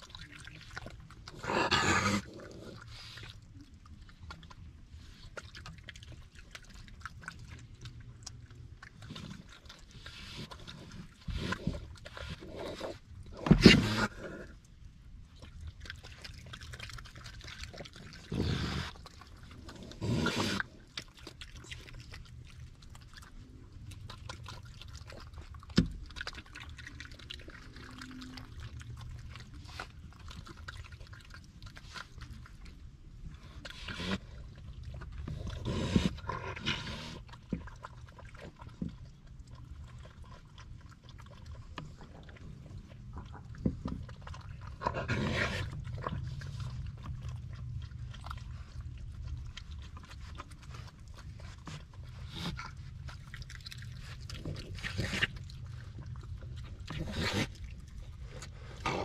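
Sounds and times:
wet chewing and lapping: 0.0s - 59.0s.

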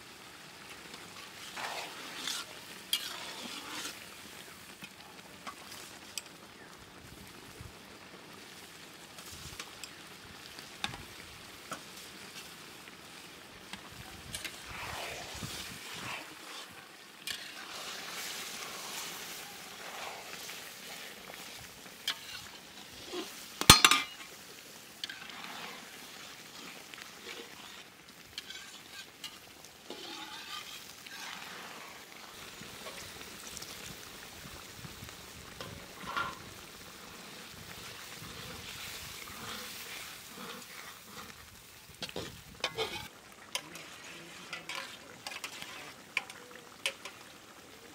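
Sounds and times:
sizzling: 0.0s - 47.9s
metal spatula scraping a wok: 0.9s - 5.9s, 14.2s - 33.1s, 35.6s - 36.5s, 38.0s - 47.2s
water poured into pan: 14.2s - 24.4s.

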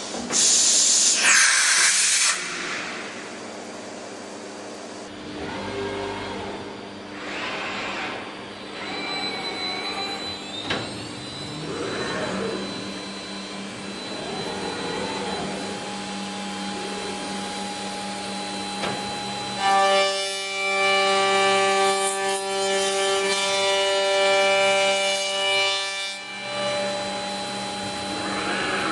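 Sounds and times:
machine motors whirring: 5.2s - 19.6s, 26.4s - 28.9s
circular saw blade high whine: 5.6s - 25.6s, 26.2s - 28.9s
faint rising whine: 9.2s - 19.3s.

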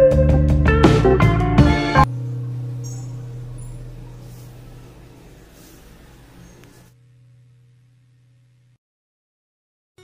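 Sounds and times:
low guitar note ringing: 2.0s - 8.8s.

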